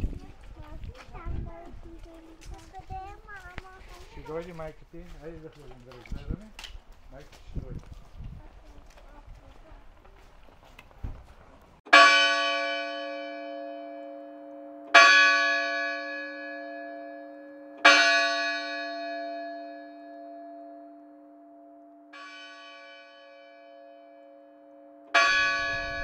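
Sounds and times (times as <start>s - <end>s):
church bell ringing: 11.9s - 26.0s.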